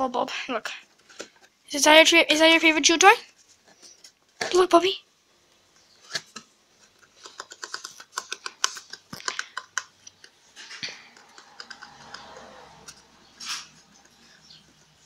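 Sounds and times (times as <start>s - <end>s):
rabbit crunching cardboard: 6.0s - 14.1s
cardboard tube scraping: 10.5s - 14.4s.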